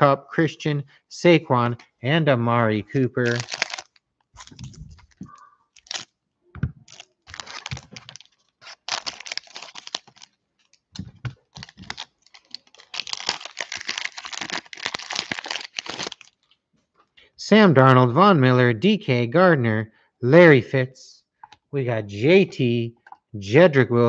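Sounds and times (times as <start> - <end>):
foil wrapper crinkling and tearing: 3.2 - 6.1, 6.9 - 16.6.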